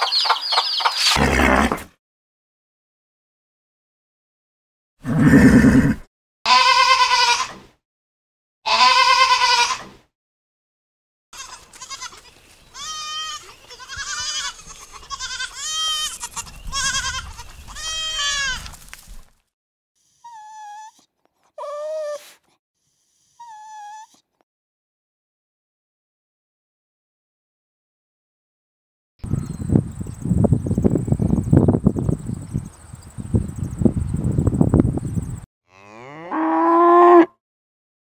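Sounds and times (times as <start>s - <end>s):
loud animal cries: 5.1s - 7.6s, 8.7s - 9.9s, 12.8s - 18.6s
puppy whimpers: 20.2s - 22.4s, 23.4s - 24.2s.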